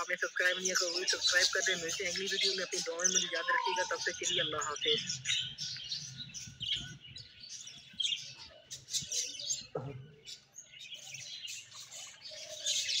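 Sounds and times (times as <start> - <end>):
budgerigars chattering: 0.0 - 9.8.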